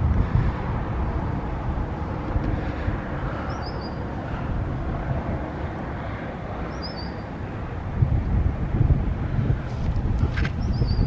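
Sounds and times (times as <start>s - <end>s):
low outdoor rumble: 0.0s - 11.0s
wind buffeting microphone: 0.0s - 11.0s
small bird chirping: 3.5s - 4.0s, 6.7s - 7.2s, 10.6s - 11.0s.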